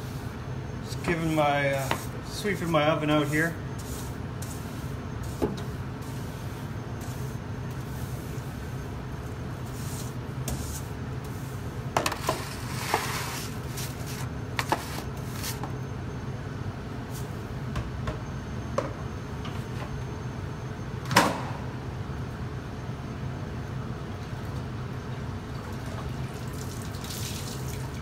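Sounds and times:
steady low hum: 0.0s - 25.6s
brush scraping stone floor: 12.0s - 15.6s.

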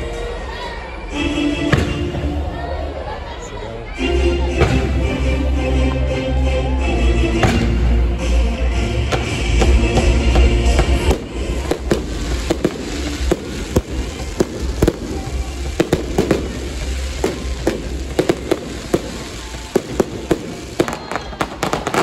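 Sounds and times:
fireworks bangs and crackling pops: 9.1s - 22.0s.

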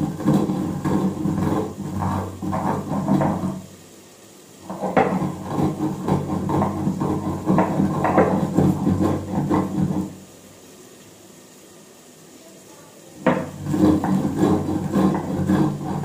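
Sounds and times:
stone roller grinding spices: 0.0s - 3.7s, 4.6s - 10.3s, 13.2s - 16.0s.

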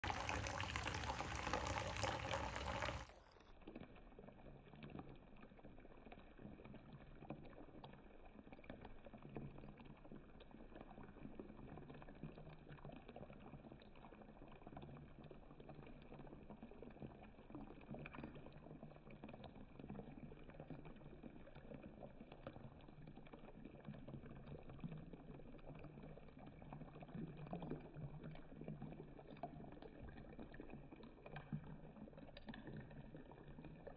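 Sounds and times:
water running into bathtub: 0.0s - 3.1s.

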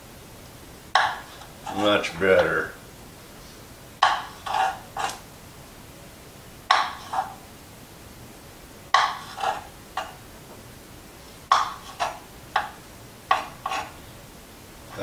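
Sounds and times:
knife tapping on cutting board: 1.0s - 1.2s, 4.0s - 4.3s, 6.7s - 7.0s, 8.9s - 9.3s.

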